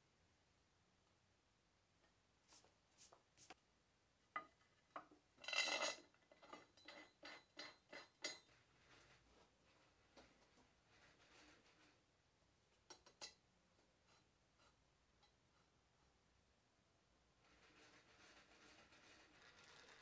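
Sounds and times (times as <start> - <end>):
metal scraping slide on wood: 17.4 - 20.0.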